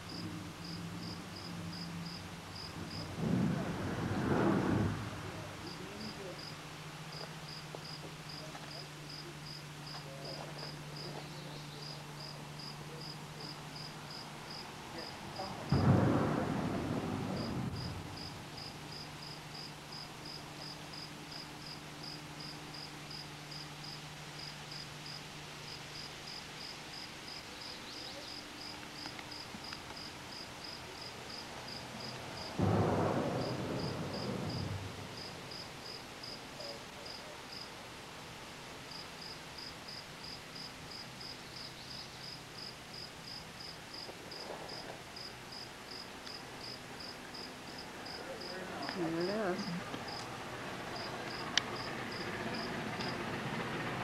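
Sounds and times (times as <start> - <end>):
insect chirping: 0.0 - 3.2, 5.4 - 37.8, 38.8 - 53.2
loud rumbling rush: 2.3 - 6.4, 14.9 - 18.9, 32.3 - 35.8, 48.9 - 54.0.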